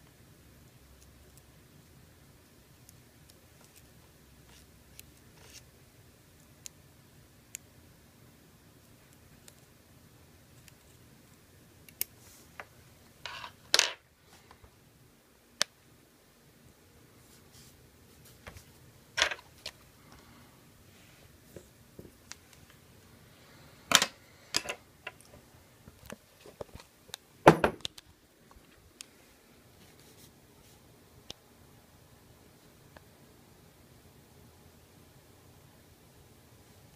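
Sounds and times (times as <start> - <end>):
knock: 27.5 - 27.8.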